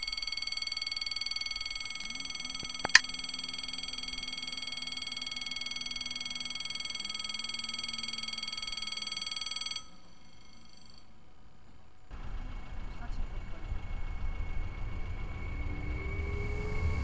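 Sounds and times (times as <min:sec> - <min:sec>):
low hum: 0:00.0 - 0:17.0
level crossing bell ringing: 0:00.1 - 0:11.1.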